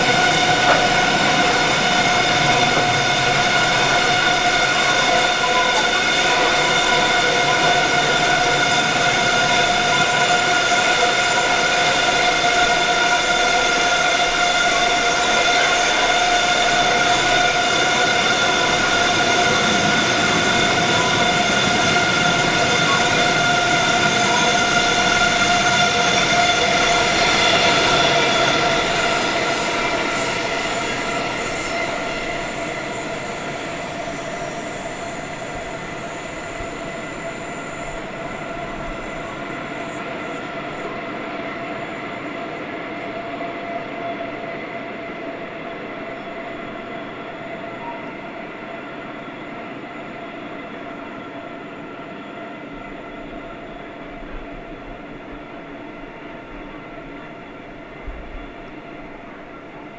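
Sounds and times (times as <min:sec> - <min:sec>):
train wagons rumbling: 0:00.0 - 0:41.2
train wheels squealing: 0:00.0 - 0:59.9.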